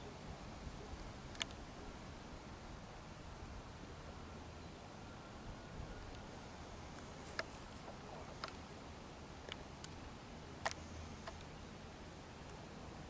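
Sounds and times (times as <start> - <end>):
background hiss: 0.0 - 13.0
faint sharp ticks: 10.6 - 11.6.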